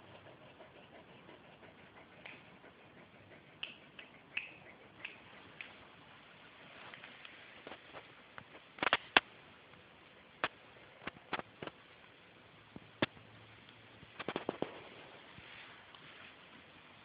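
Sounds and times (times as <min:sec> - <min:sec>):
faint steady hiss: 0:00.0 - 0:17.0
sharp clicks and taps: 0:02.2 - 0:02.5, 0:03.5 - 0:05.8, 0:07.2 - 0:09.3, 0:14.1 - 0:14.9.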